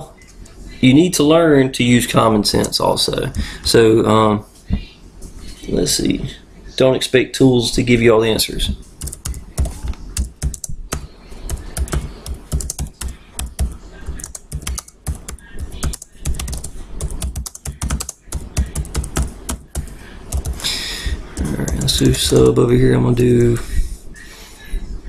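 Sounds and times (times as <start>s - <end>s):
keyboard typing: 2.6s - 3.8s, 9.0s - 22.6s.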